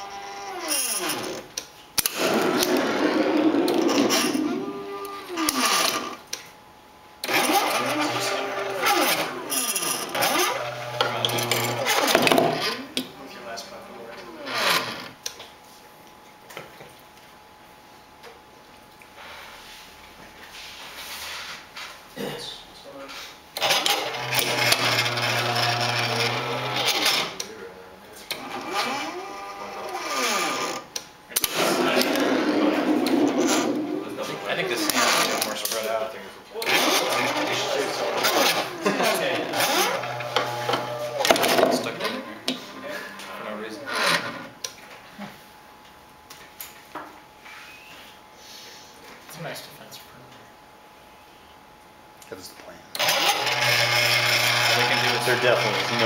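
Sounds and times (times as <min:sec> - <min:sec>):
electric motors whining: 0:00.0 - 0:06.3, 0:07.2 - 0:13.0, 0:13.7 - 0:15.2, 0:23.6 - 0:27.6, 0:28.3 - 0:36.0, 0:36.6 - 0:42.3, 0:53.0 - 0:56.0
motor whine sweeping in pitch: 0:02.1 - 0:06.1, 0:31.5 - 0:35.4.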